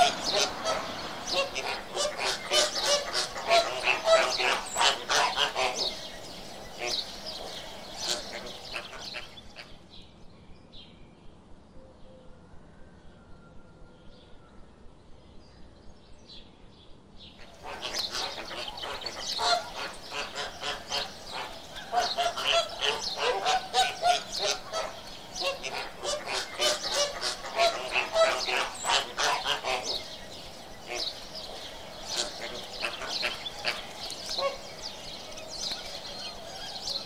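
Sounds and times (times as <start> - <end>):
flamingos honking: 0.0 - 9.7, 17.5 - 37.0
faint bird calls: 0.0 - 9.9, 17.4 - 37.0.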